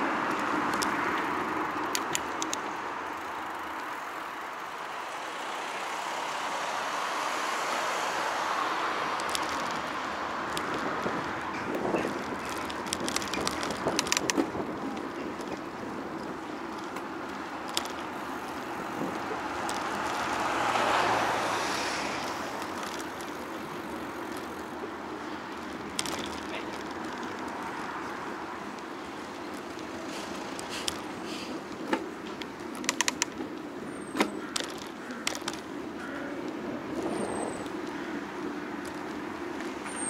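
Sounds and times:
car passing: 0.0 - 32.6
tyre and wind noise: 0.0 - 40.0
sharp clicks and rattles: 0.3 - 2.7, 9.1 - 20.4, 22.4 - 24.8, 25.5 - 33.6, 34.2 - 35.8.

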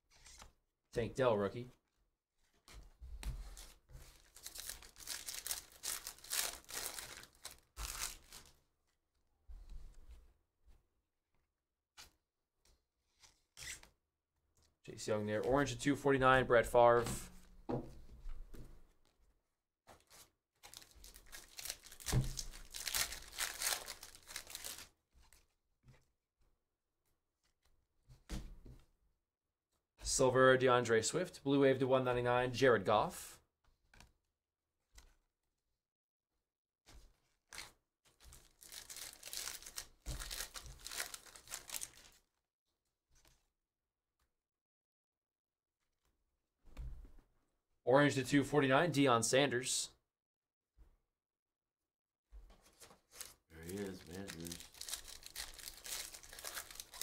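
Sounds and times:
foil pack crinkling: 3.6 - 8.5, 20.6 - 24.9, 38.3 - 42.2, 53.1 - 57.0
foil ripping: 4.3 - 8.5, 20.7 - 24.9, 38.4 - 42.1, 53.1 - 57.0.

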